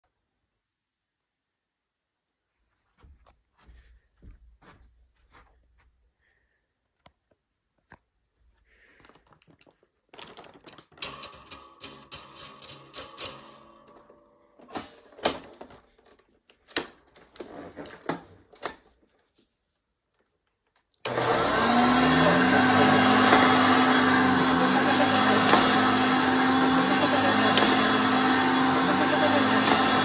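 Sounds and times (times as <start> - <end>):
vacuum cleaner motor: 21.0 - 30.0.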